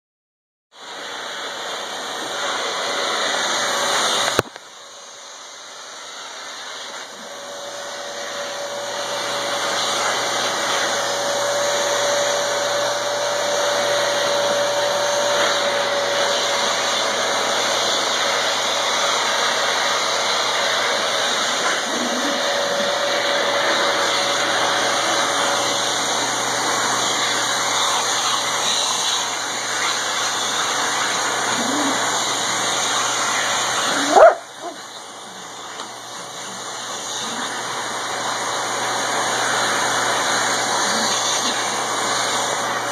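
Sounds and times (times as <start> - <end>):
vacuum cleaner running: 0.7 - 42.9
dog whimpering: 21.6 - 22.9, 31.4 - 32.2, 33.9 - 34.8.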